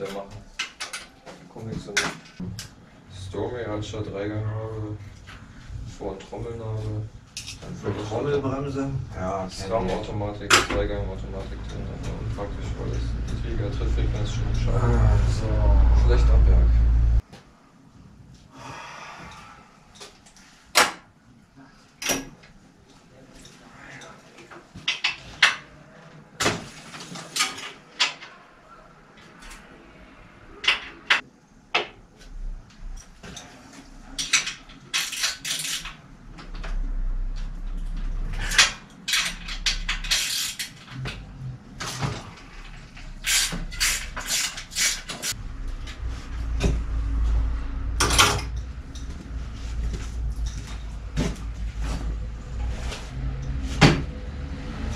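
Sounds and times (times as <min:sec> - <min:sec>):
tools and bike parts clattering: 0:00.0 - 0:02.8, 0:07.3 - 0:08.0, 0:23.3 - 0:25.7, 0:26.4 - 0:28.4, 0:30.6 - 0:32.0, 0:32.9 - 0:36.8, 0:37.4 - 0:46.8, 0:48.0 - 0:54.1
low rumble: 0:11.0 - 0:17.2, 0:45.4 - 0:53.2.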